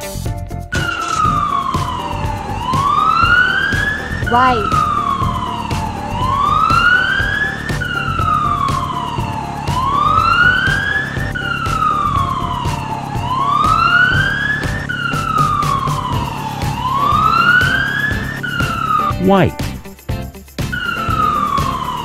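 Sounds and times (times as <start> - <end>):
police siren wailing: 0.7 - 19.5, 20.8 - 22.0.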